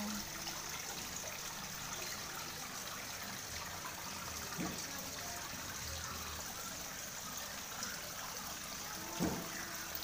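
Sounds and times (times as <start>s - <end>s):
water trickling: 0.0s - 10.0s
soft knock: 9.2s - 9.5s.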